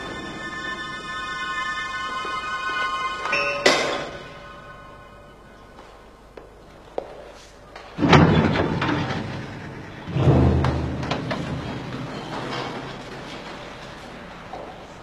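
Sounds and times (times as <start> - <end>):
heavy thuds: 10.0 - 13.4.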